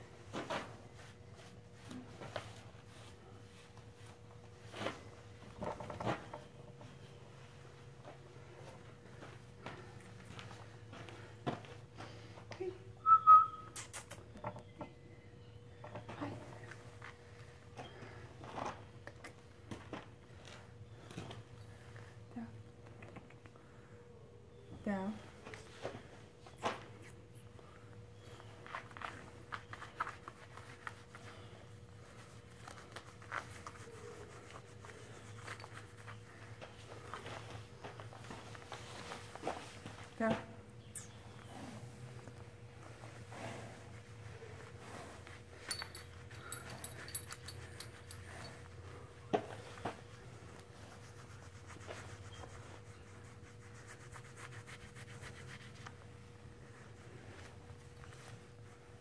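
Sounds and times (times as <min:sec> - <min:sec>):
grooming gloves rustling on horse: 0:00.1 - 0:11.8, 0:28.2 - 0:40.2, 0:41.4 - 0:59.0
glove brushing horse's face: 0:28.8 - 0:37.6, 0:49.0 - 0:59.0.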